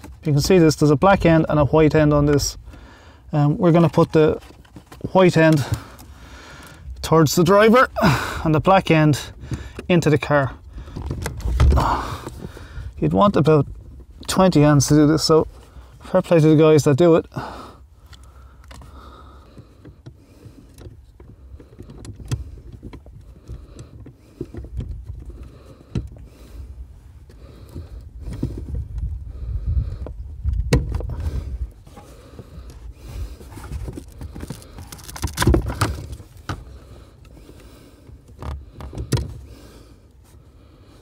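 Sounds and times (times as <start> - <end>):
plastic and metal parts knocking: 10.8 - 12.6, 18.6 - 26.3, 30.0 - 31.3, 33.4 - 36.7, 38.2 - 39.5
clicks and knocks of parts: 33.4 - 39.5.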